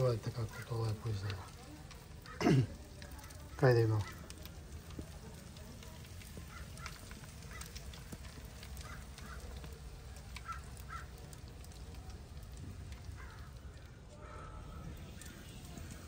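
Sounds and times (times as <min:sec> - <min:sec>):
faint clicks: 0:03.0 - 0:14.0.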